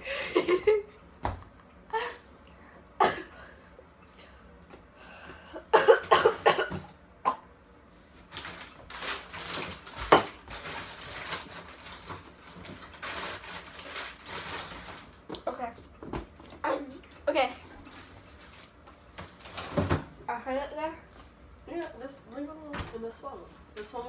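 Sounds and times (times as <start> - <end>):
girl coughing: 3.0 - 3.4, 5.6 - 7.5.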